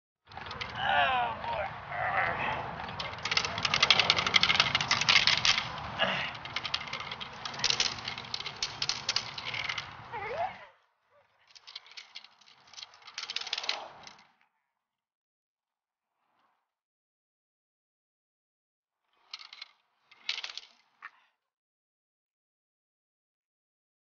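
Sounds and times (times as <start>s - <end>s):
stick rattling: 0.3s - 1.6s, 2.3s - 10.6s, 11.4s - 14.3s, 19.2s - 21.0s.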